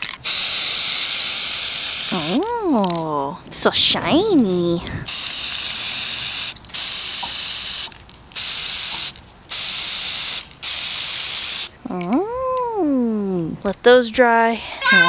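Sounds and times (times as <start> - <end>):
spray paint can hissing: 0.0 - 2.5, 5.1 - 11.8.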